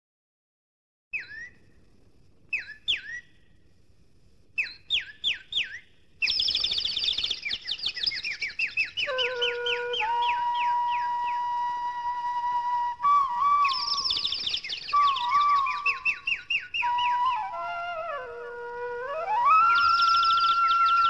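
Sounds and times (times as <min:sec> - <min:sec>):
bird-like chirps: 0:01.2 - 0:01.6, 0:02.5 - 0:03.5, 0:04.6 - 0:11.4, 0:13.6 - 0:17.5, 0:19.6 - 0:21.0
long held musical tones: 0:09.0 - 0:21.0.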